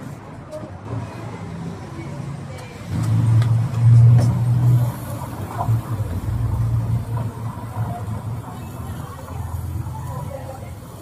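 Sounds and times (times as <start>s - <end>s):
engine humming: 2.5s - 11.0s.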